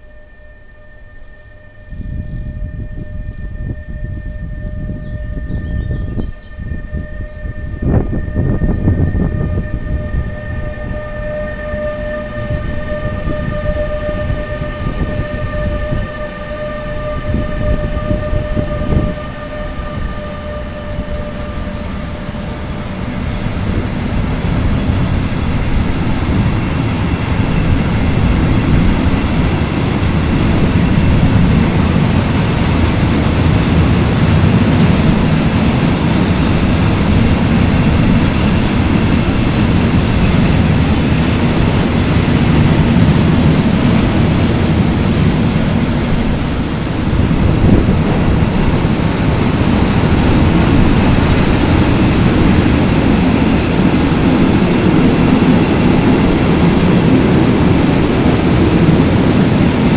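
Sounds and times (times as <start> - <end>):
electric locomotives whining: 0.0 - 59.9
train wagons clattering over rails: 20.8 - 59.9.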